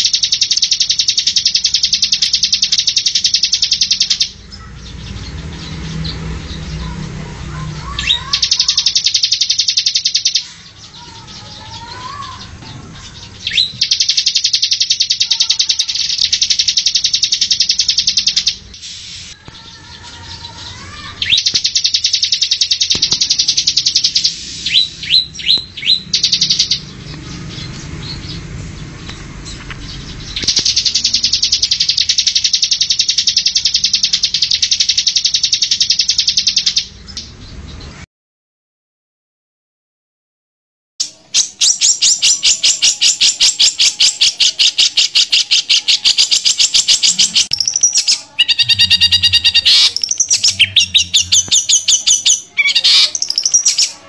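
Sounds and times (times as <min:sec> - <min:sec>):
sharp loud bird chirps: 0:00.0 - 0:07.0, 0:07.8 - 0:38.0, 0:41.0 - 0:54.0
soft bird chirps and warbles: 0:00.0 - 0:38.0, 0:41.0 - 0:54.0
fast high bird trills: 0:07.8 - 0:18.7, 0:41.0 - 0:54.0.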